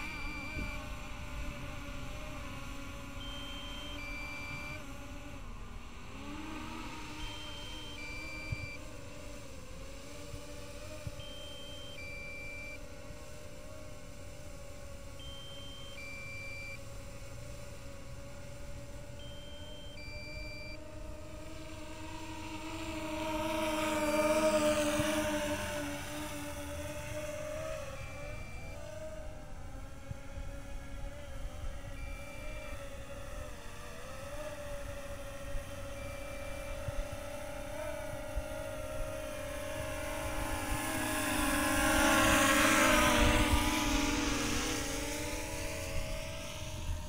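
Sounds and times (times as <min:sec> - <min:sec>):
drone propellers humming: 0:00.0 - 0:47.0
three-note electronic beep: 0:03.2 - 0:04.8, 0:07.2 - 0:08.8, 0:15.2 - 0:16.8.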